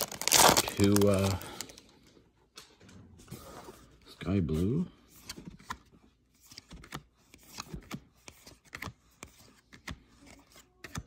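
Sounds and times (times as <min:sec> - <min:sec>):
cards rustling: 0:00.0 - 0:01.8.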